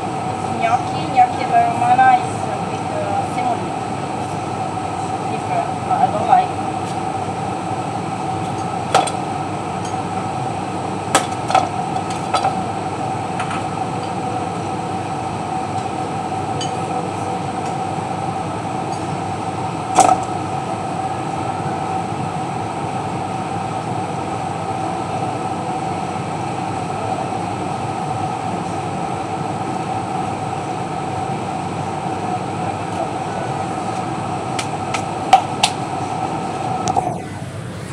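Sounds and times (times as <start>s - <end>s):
steady mechanical hum: 0.0s - 37.9s.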